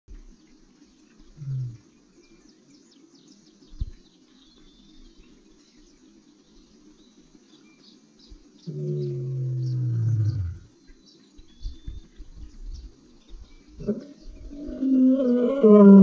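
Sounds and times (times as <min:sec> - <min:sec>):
insect calls: 0:00.1 - 0:16.0
faint bird chirps: 0:00.2 - 0:15.6
lion roaring: 0:08.7 - 0:10.7, 0:13.8 - 0:16.0.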